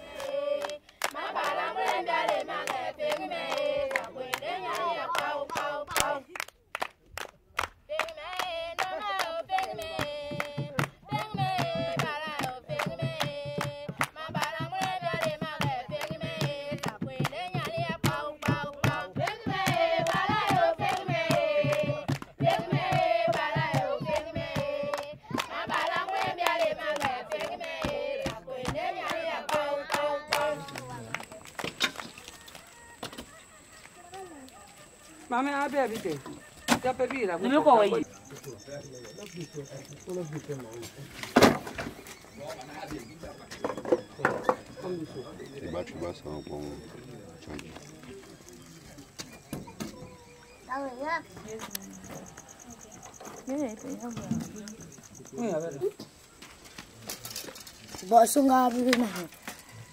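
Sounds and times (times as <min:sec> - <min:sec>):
group of voices singing: 0:00.0 - 0:06.4, 0:07.9 - 0:31.3
hand clapping: 0:00.1 - 0:34.6.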